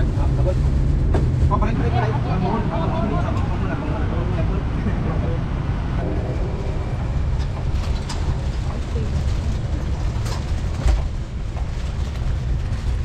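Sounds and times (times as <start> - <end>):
low rumble of street noise: 0.0 - 13.0.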